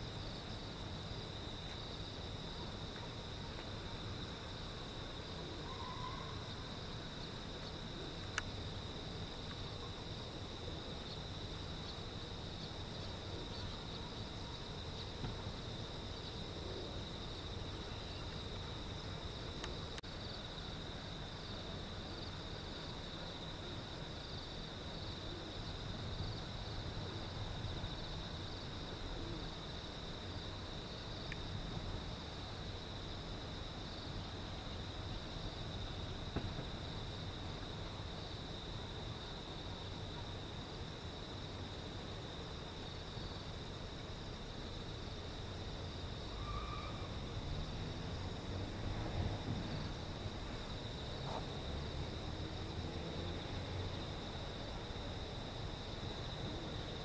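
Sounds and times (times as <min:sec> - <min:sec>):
crickets chirping: 0:00.0 - 0:57.0.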